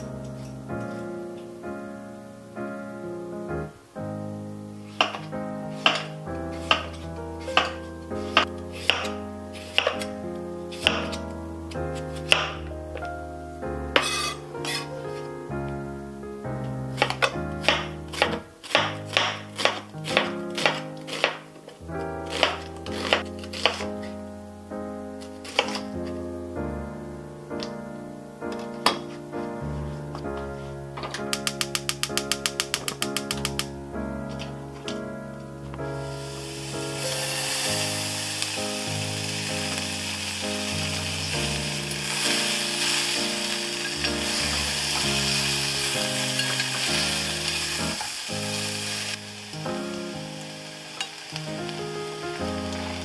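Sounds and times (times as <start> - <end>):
background music with chords: 0.0 - 53.0
food sizzling in hot oil: 14.0 - 14.9, 36.1 - 53.0
knife slicing on wooden board: 14.0 - 14.9, 18.2 - 21.4, 22.3 - 23.9.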